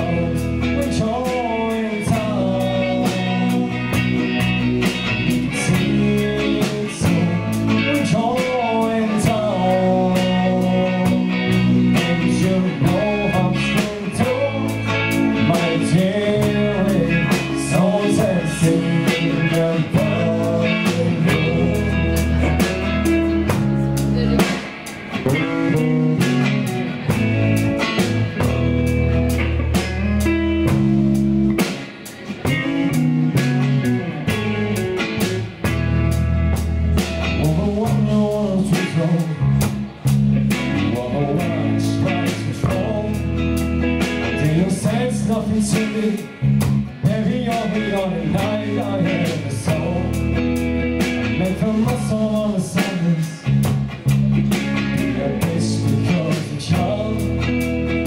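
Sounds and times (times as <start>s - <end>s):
man singing: 0.0s - 24.6s, 25.3s - 27.3s, 37.2s - 50.4s, 51.0s - 53.7s, 54.8s - 58.0s
drum kit: 0.0s - 58.0s
electric bass: 0.0s - 58.0s
electric guitars: 0.0s - 58.0s.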